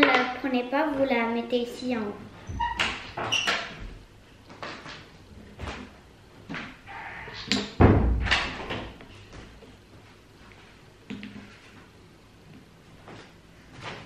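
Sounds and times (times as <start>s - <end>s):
loud thump: 7.8s - 8.4s.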